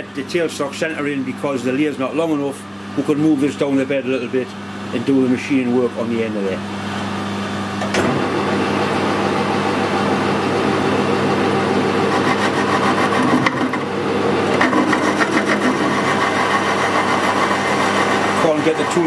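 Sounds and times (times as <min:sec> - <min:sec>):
lathe motor and gear hum: 0:00.0 - 0:19.0
rough pulsing cutting noise: 0:12.0 - 0:13.9, 0:14.5 - 0:19.0.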